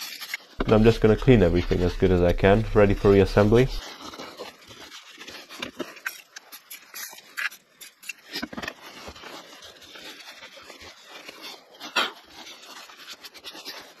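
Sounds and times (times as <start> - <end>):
cloth rubbing on metal: 0.6 - 3.8.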